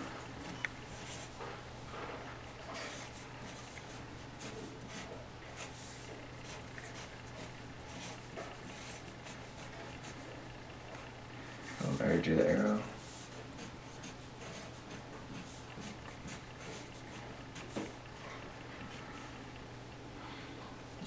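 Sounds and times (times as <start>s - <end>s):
marker pen writing on paper: 2.6s - 10.3s, 13.0s - 18.0s.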